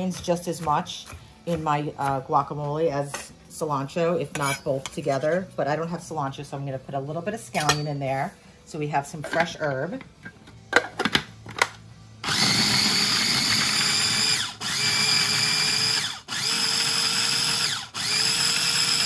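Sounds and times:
food processor whirring: 12.2 - 19.0.

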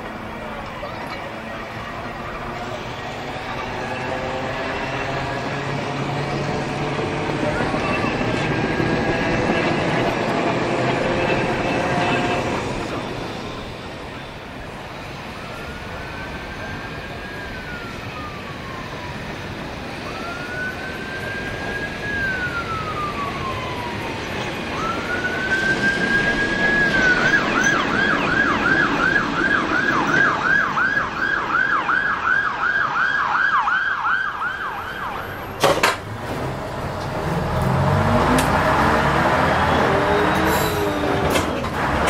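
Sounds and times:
emergency siren wailing and yelping: 0.5 - 35.6, 37.2 - 42.0
vehicle engine revving: 36.1 - 42.0.

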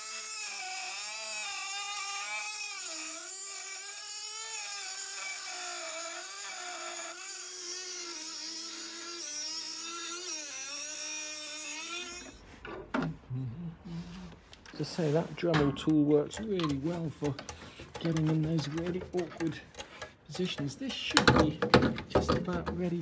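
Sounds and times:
rotary tool cutting metal: 0.0 - 12.4, 16.3 - 21.4.

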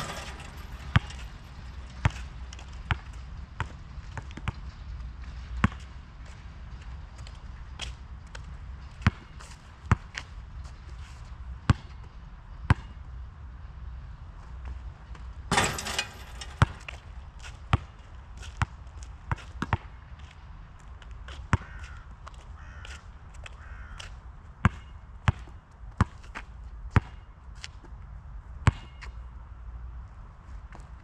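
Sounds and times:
basketball clanging off hoop: 0.0 - 2.2, 15.5 - 17.0
basketball dribbling: 0.0 - 2.3
basketball bouncing on asphalt: 0.0 - 6.4, 7.2 - 10.8, 11.6 - 13.0, 15.1 - 20.4, 21.0 - 28.0, 28.6 - 29.3.

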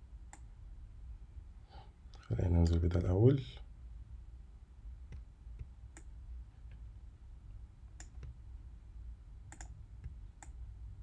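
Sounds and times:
low steady hum: 0.0 - 11.0
computer mouse clicks: 5.1 - 6.1, 8.0 - 8.4, 9.5 - 10.6.

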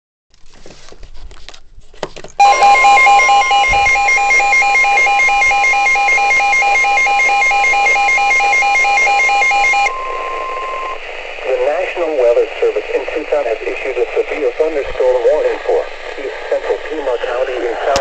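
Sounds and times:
rapid pulsing electronic beeps: 2.4 - 11.0
steady high alarm tone: 2.4 - 11.0.

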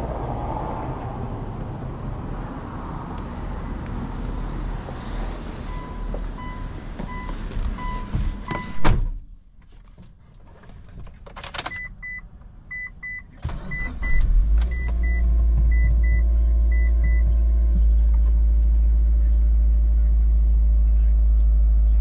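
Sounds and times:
dashboard warning chime: 5.7 - 8.8
car door shutting: 7.0 - 9.2
car engine idling: 13.3 - 22.0.

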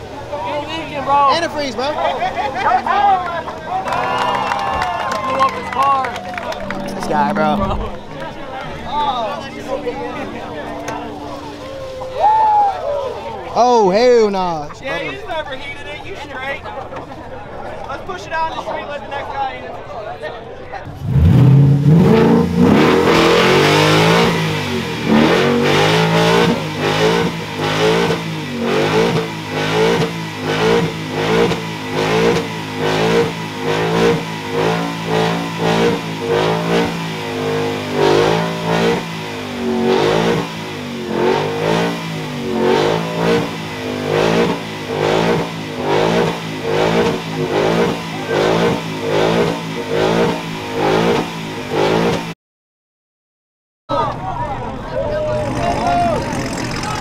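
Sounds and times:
car engine revving during burnout: 20.9 - 52.3, 55.3 - 57.0.

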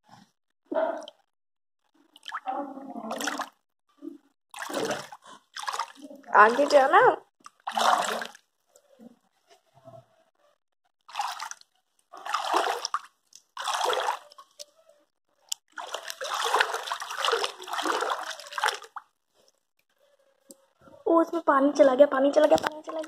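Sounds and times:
bathtub water splashing: 2.0 - 3.6, 4.5 - 8.9, 11.0 - 14.8, 15.5 - 19.6.

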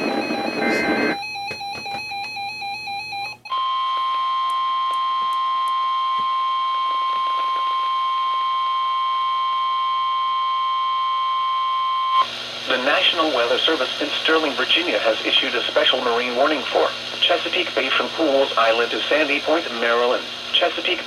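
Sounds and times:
weather radio rapid beeping: 0.0 - 2.1
steady warning alarm tone: 0.0 - 14.8.

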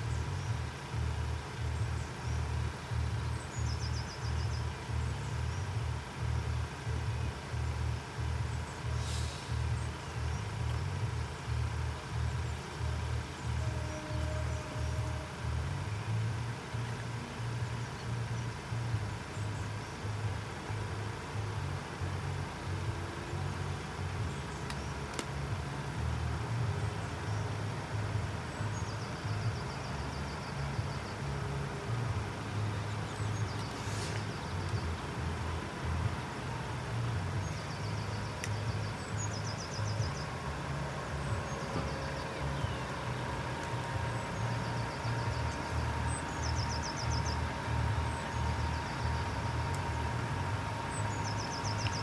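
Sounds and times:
low vehicle rumble: 0.0 - 52.0.

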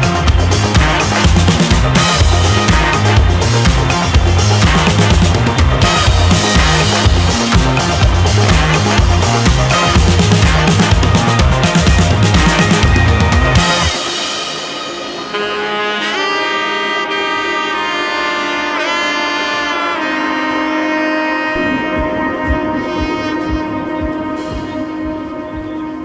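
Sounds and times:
steady drum beat: 0.0 - 16.2, 21.5 - 26.0
melody of long held notes: 0.0 - 26.0.

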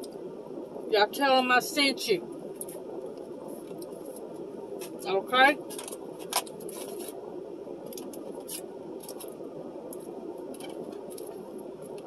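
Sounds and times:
car air conditioner fan: 0.0 - 12.0.

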